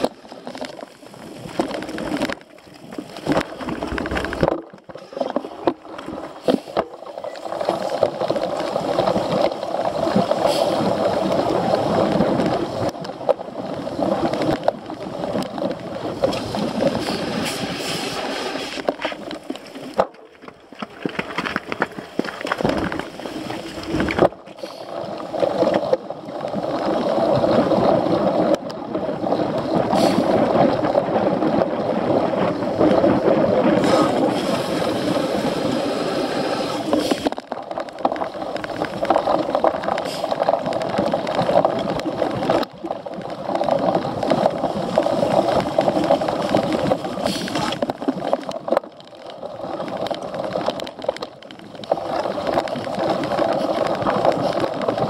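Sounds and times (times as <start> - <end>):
bicycle tyres rolling: 0.0 - 55.0
wind on microphone: 21.0 - 48.4.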